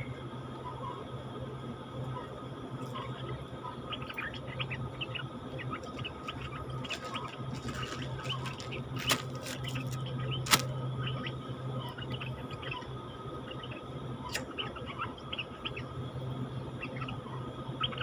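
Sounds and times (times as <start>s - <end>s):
steady low hum: 0.0s - 18.0s
birds chirping rapidly: 3.9s - 12.8s.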